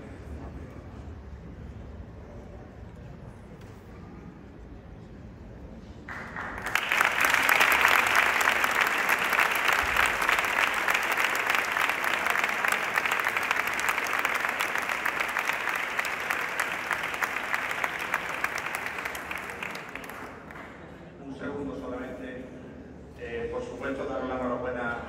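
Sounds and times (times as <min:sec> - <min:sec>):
audience applauding: 0:06.1 - 0:20.9.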